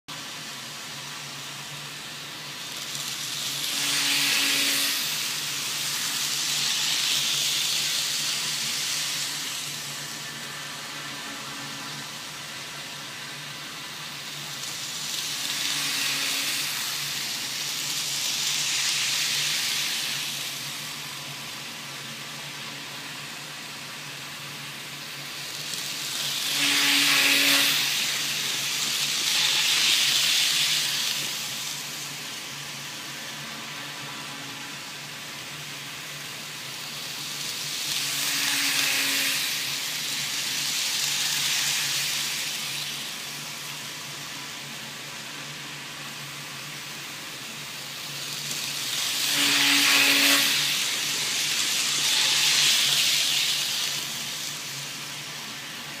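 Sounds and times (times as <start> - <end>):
model trains running: 0.1 - 56.0.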